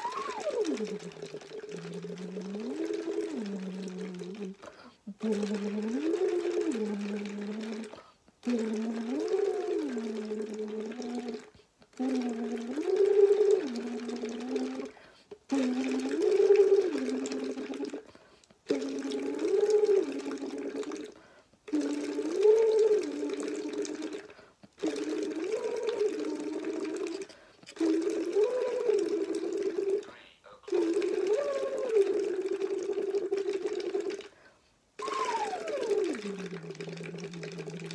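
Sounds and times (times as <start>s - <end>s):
voice buzzing through straw in water: 0.0s - 11.4s, 30.7s - 34.3s, 35.0s - 37.9s
quick breaths: 21.2s - 21.6s.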